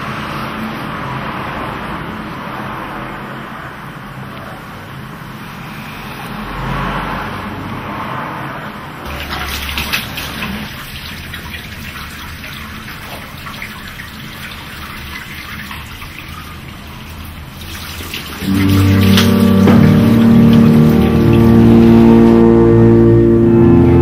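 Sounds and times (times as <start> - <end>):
running water rushing: 9.1 - 22.8
loud music: 18.4 - 24.0
low hum: 18.4 - 24.0.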